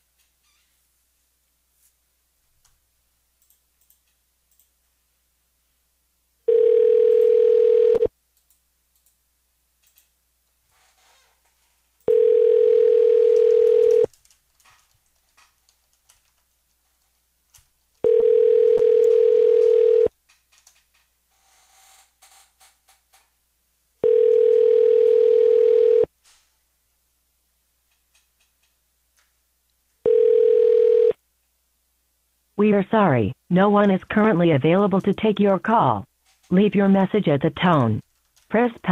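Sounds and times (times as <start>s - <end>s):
telephone ringback tone: 6.5s - 8.1s, 12.1s - 14.1s, 18.0s - 20.1s, 24.0s - 26.1s, 30.0s - 31.2s.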